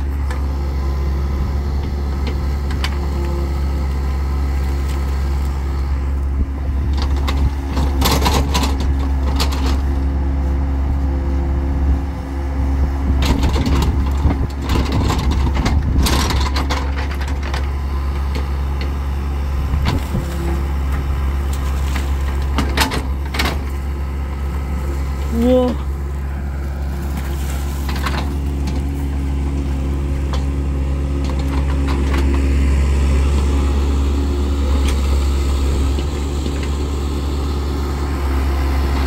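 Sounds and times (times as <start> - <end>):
excavator diesel engine running: 0.0 - 39.0
excavator bucket knocks and clanks: 13.2 - 18.9, 22.0 - 23.8.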